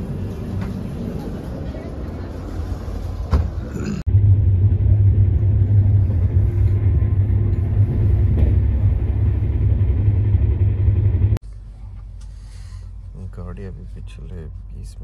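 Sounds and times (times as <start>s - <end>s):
train running rumble: 0.0s - 15.0s.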